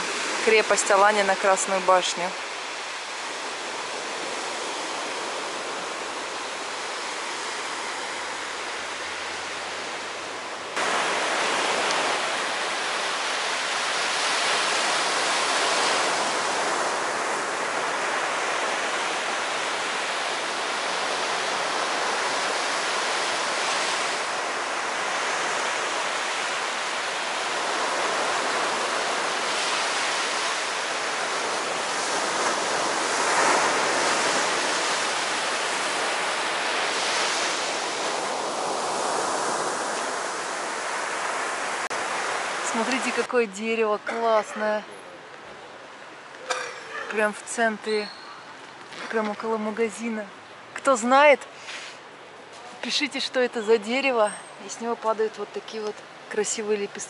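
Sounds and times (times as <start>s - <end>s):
sea surf breaking on beach: 0.0s - 44.8s.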